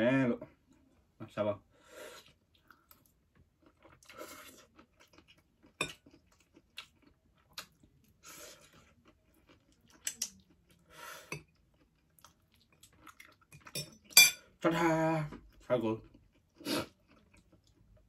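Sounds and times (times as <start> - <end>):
person slurping and chewing noodles: 1.8 - 14.2, 15.3 - 18.0.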